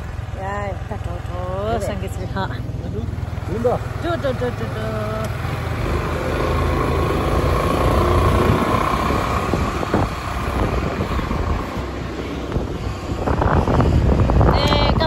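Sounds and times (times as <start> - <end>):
road noise: 0.0 - 15.0
scooter engine rumble: 0.0 - 15.0
wind rushing over microphone: 5.2 - 15.0.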